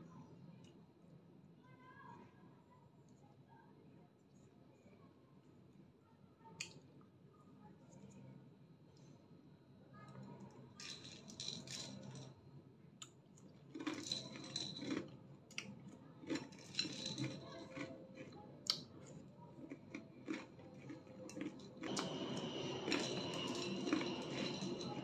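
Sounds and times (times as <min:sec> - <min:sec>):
chewing and mouth noises: 0:13.0 - 0:25.0.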